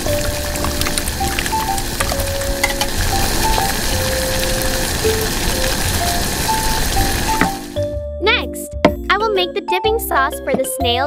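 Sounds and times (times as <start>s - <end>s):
liquid sizzling and bubbling: 0.0s - 7.8s.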